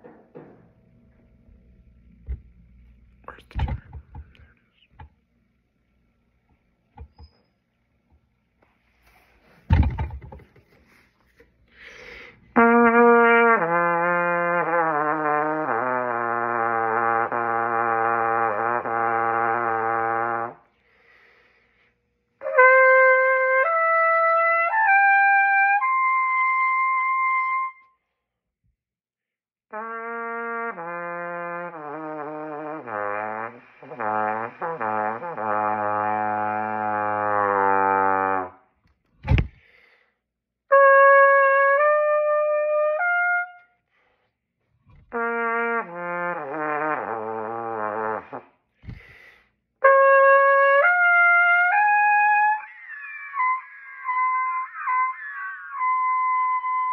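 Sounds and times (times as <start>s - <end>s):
brief thump: 9.6s - 10.8s, 39.2s - 39.6s
trumpet playing: 12.4s - 20.7s, 22.4s - 28.0s, 29.7s - 38.7s, 40.7s - 43.8s, 44.9s - 48.6s, 49.8s - 56.9s.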